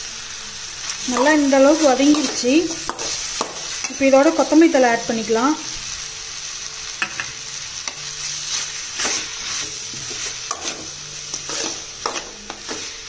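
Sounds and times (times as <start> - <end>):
vegetables sizzling in oil: 0.0 - 13.0
steel spatula scraping pan: 8.5 - 13.0.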